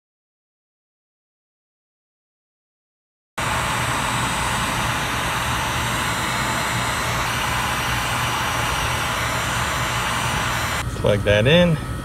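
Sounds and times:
heat gun blowing: 3.4s - 10.9s.

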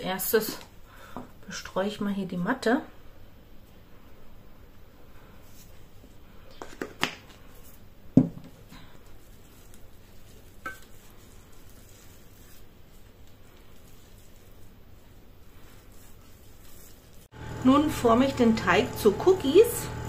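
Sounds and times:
metal bowl clink: 10.6s - 11.0s.

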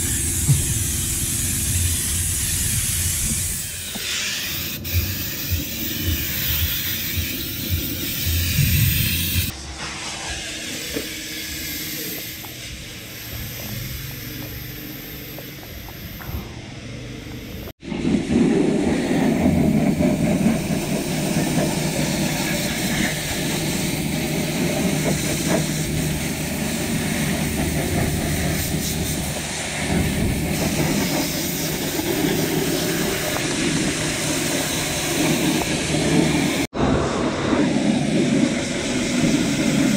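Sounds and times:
pressure washer spraying: 0.0s - 9.5s, 19.6s - 36.7s.

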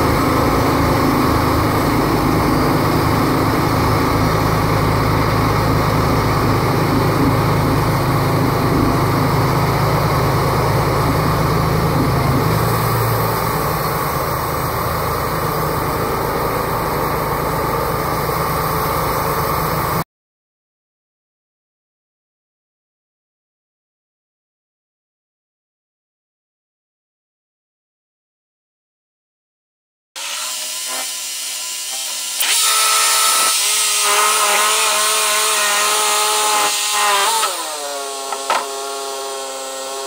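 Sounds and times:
band sawmill cutting log: 0.0s - 20.0s, 30.2s - 40.0s.

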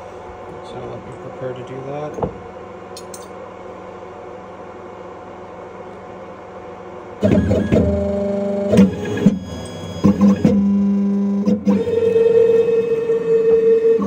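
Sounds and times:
buzzing motor whine: 7.2s - 14.0s.

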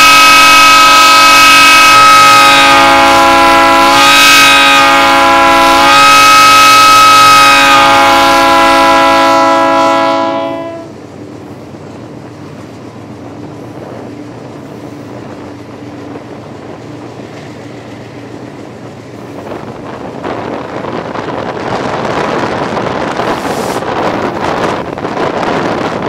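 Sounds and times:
locomotive air horn chord: 0.0s - 11.0s
train rumble and wheel noise: 0.0s - 26.0s.

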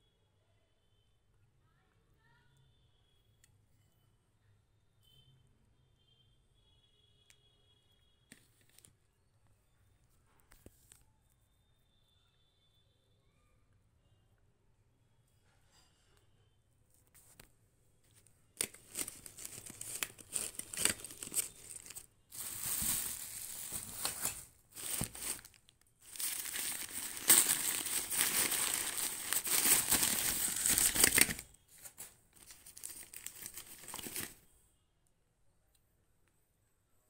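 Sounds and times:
newspaper rustling and crinkling: 18.6s - 34.4s.

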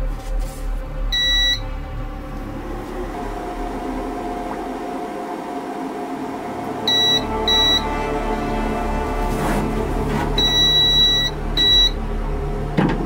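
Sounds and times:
steady whine: 0.0s - 13.0s
touchscreen beep: 1.2s - 1.6s, 10.4s - 12.0s
motor humming: 1.2s - 13.0s.

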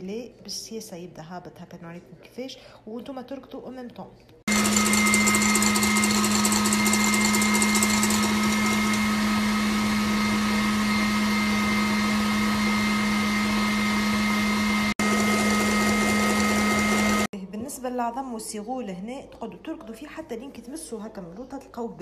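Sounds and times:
stand mixer running: 4.5s - 17.3s.

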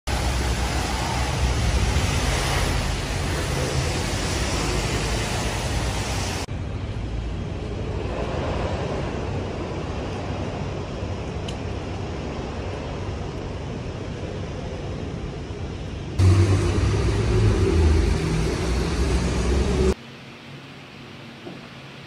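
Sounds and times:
traffic rushing: 0.1s - 13.5s, 16.2s - 20.0s.

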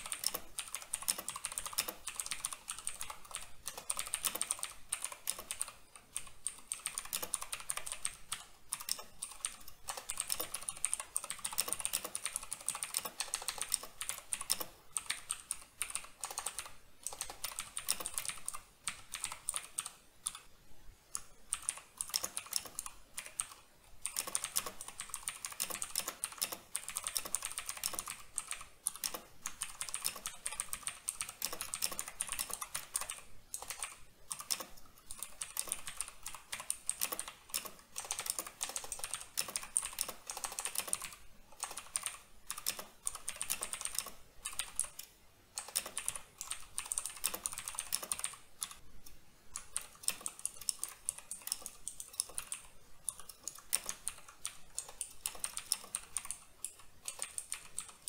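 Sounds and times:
mechanical keyboard typing: 0.0s - 48.8s, 49.5s - 58.0s.

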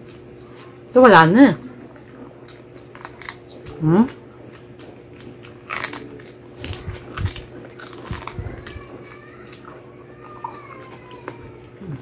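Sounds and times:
chewing crispy pork: 0.0s - 12.0s
crunchy bites: 4.6s - 10.5s.

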